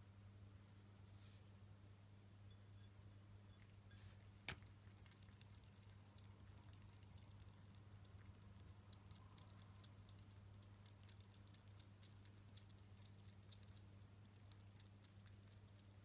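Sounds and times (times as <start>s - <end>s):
low steady hum: 0.0s - 16.0s
kitten lapping water: 3.5s - 16.0s.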